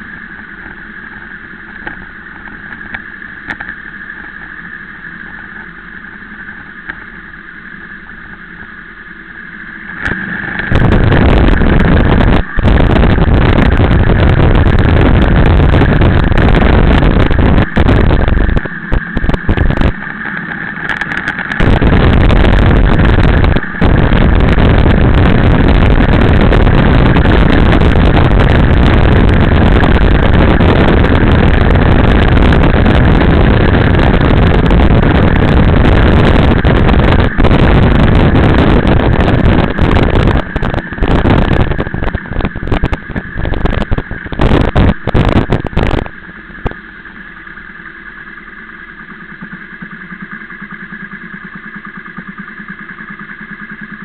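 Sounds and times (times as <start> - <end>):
wind rush: 9.6 - 46.8.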